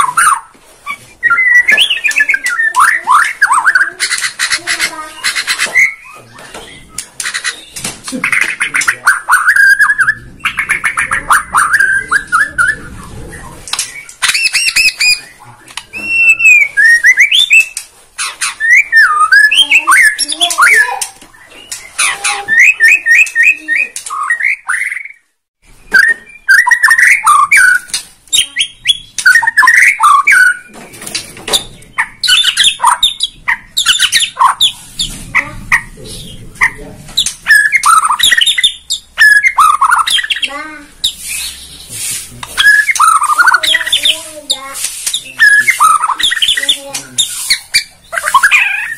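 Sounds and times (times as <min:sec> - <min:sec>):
bird singing whistles and trills: 0:00.0 - 0:03.9, 0:08.9 - 0:17.8, 0:18.5 - 0:25.2, 0:25.8 - 0:30.7, 0:37.2 - 0:41.7, 0:42.6 - 0:44.2, 0:45.1 - 0:48.9.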